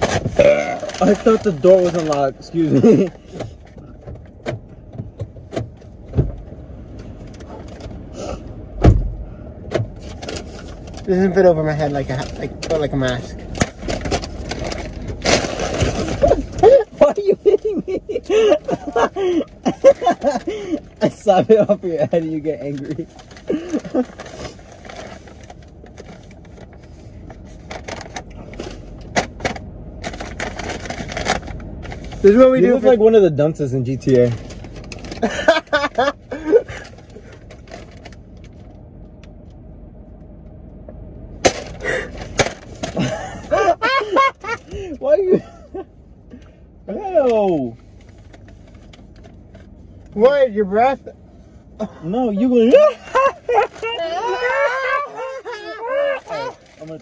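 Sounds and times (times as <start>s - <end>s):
low steady hum: 0.0s - 57.0s
low steady rumble: 0.0s - 57.0s
knocks and thumps in car: 3.2s - 6.6s, 8.8s - 10.3s
paper bag crinkling: 13.8s - 17.6s, 52.7s - 57.0s.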